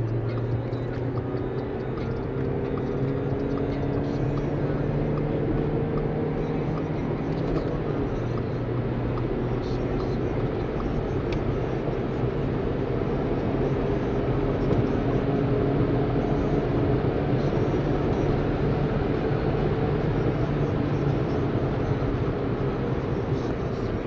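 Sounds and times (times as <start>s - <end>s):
diesel engine drone: 0.0s - 24.0s
wind and tyre noise: 0.0s - 24.0s.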